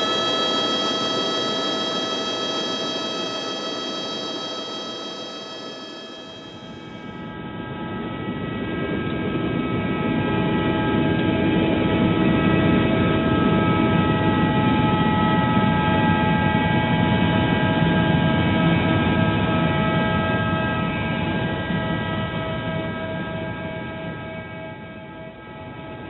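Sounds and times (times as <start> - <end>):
helicopter whine: 0.0 - 7.2.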